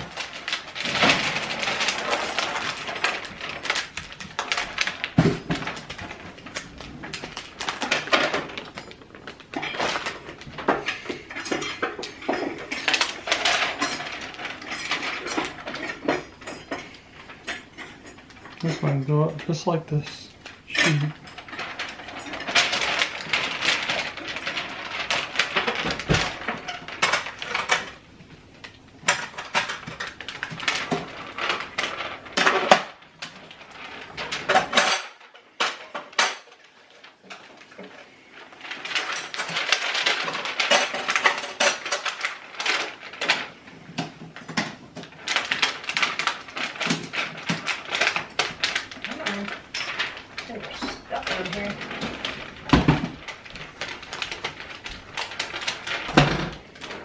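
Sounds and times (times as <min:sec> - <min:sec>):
thin plastic crinkling: 0:00.0 - 0:57.0.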